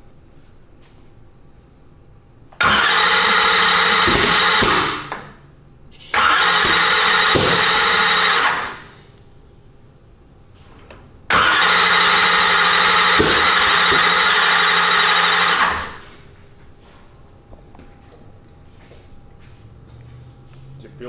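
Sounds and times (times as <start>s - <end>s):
starter motor cranking engine: 2.6s - 5.1s, 6.1s - 8.9s, 11.3s - 16.1s.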